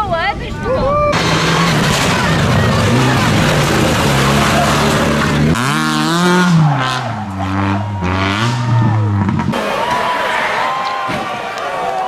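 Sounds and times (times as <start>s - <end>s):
tyre and road noise: 0.0s - 12.0s
rally car engine revving: 1.2s - 9.9s.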